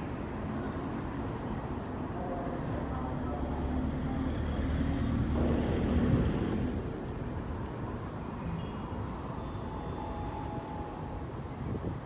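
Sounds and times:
city road traffic rumble: 0:00.0 - 0:12.0.

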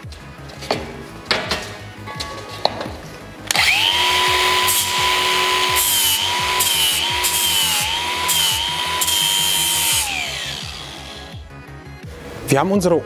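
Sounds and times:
angle grinder whining: 0:03.5 - 0:11.6.

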